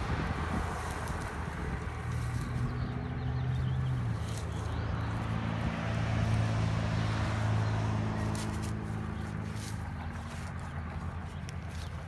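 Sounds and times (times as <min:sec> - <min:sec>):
engine humming: 0:00.0 - 0:12.0
trowel scraping dry soil: 0:08.2 - 0:12.0.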